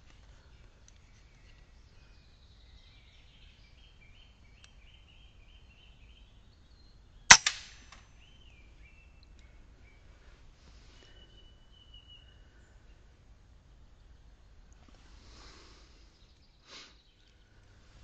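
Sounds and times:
birds chirping faintly: 0.0s - 18.0s
air rifle shot: 7.3s - 8.0s.

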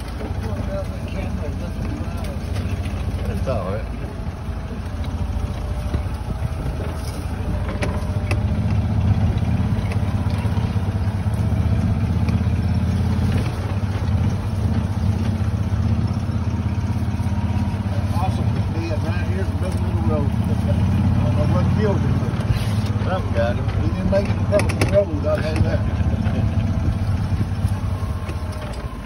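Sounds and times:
utility vehicle engine droning: 0.0s - 29.0s
light clicks and rattles: 22.3s - 29.0s.

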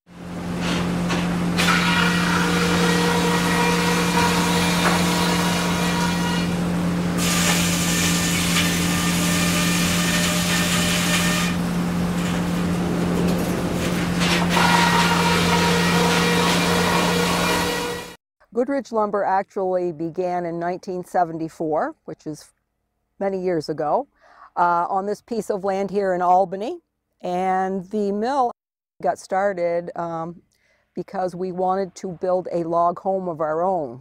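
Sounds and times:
motor hum: 0.1s - 18.2s
saw cutting noise: 0.2s - 18.2s.

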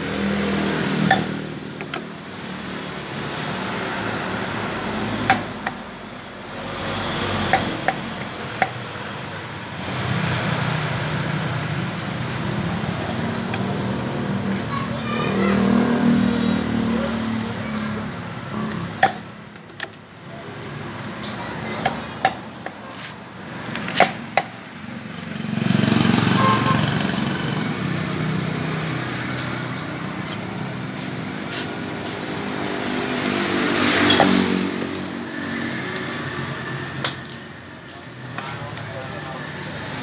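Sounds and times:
passing motor vehicle: 0.0s - 40.0s
cleaver chopping on wooden block: 7.5s - 8.8s, 23.8s - 24.5s.

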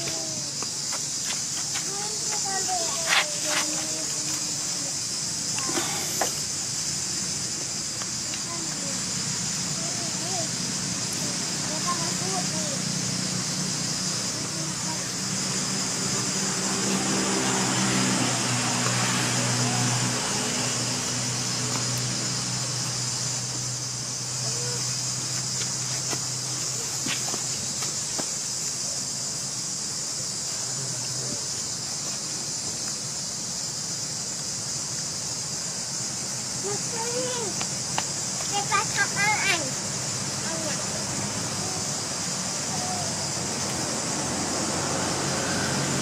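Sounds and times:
insects chorus: 0.0s - 46.0s
low engine-like hum: 2.0s - 28.0s, 28.8s - 46.0s.

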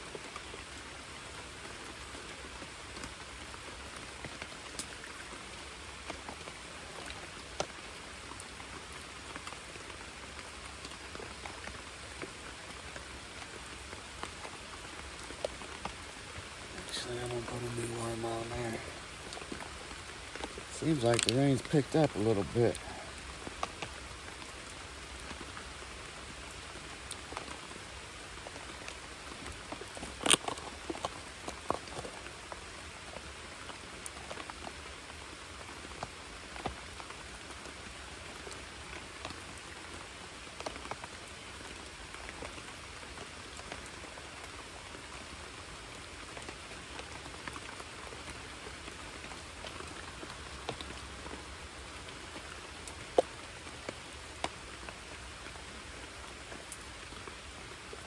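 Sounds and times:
rain falling on a creek: 0.0s - 58.0s
drops ticking near microphone: 20.4s - 23.0s.

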